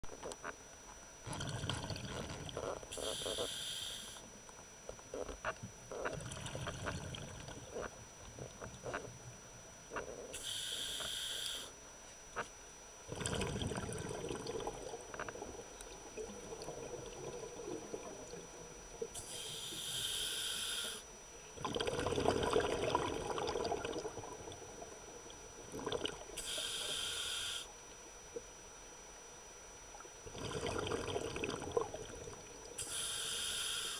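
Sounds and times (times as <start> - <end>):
exhaled bubbles gurgling: 1.3 - 3.4, 5.9 - 9.0, 13.1 - 19.2, 21.6 - 26.7, 30.0 - 32.8
regulator hissing inhalations: 2.9 - 4.3, 10.4 - 11.7, 19.2 - 21.1, 26.4 - 27.7, 32.8 - 33.9.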